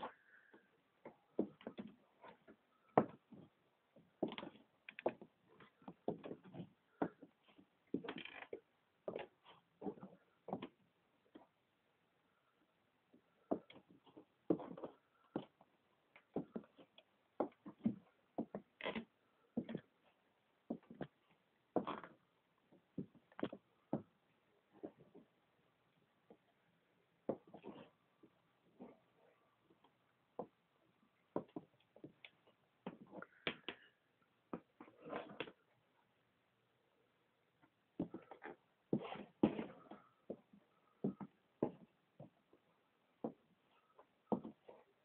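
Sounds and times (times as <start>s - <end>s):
boots stepping on wooden floor: 1.0s - 3.5s, 13.5s - 15.6s, 38.0s - 42.4s, 44.3s - 44.7s
boots scuffing: 38.0s - 40.4s.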